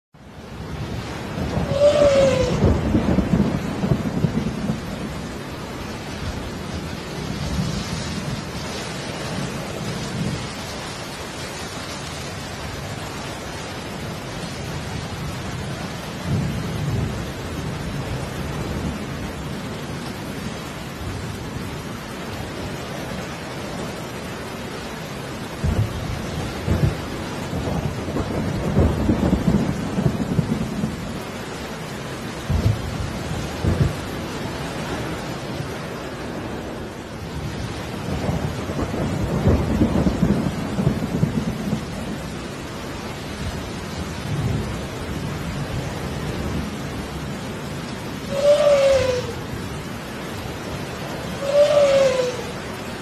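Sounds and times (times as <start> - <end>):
rain hiss: 0.2 - 53.0.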